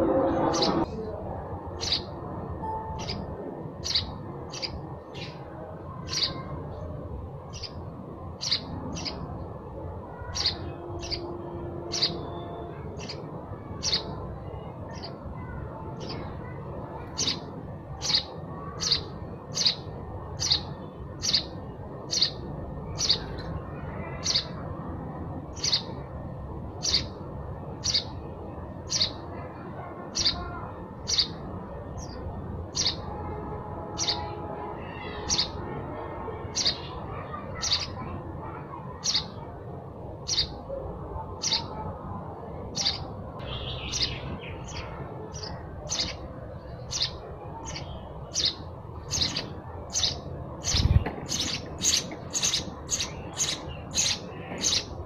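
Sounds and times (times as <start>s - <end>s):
sparrow chirping: 1.8s - 6.5s, 7.4s - 9.3s, 10.1s - 14.2s, 17.0s - 23.5s, 24.1s - 24.6s, 25.5s - 26.1s, 26.7s - 27.2s, 27.8s - 29.3s, 30.1s - 31.4s, 32.0s - 33.1s, 34.0s - 34.3s, 34.9s - 35.6s, 36.6s - 37.0s, 37.6s - 38.1s, 39.0s - 39.5s, 40.2s - 40.7s, 41.4s - 41.8s, 42.7s - 55.0s.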